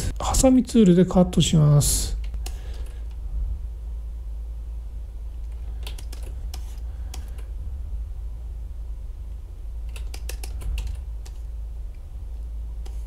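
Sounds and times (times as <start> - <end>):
steady low hum: 0.0 - 13.0
mouse and keyboard clicks: 5.5 - 7.5, 9.9 - 11.5.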